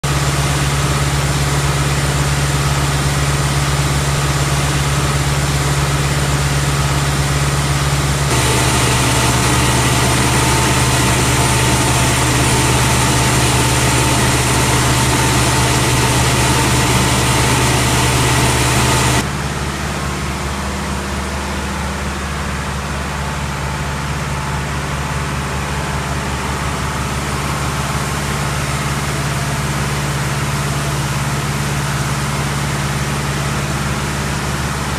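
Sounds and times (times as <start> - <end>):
grain blower and tractor drone: 0.2 - 19.6.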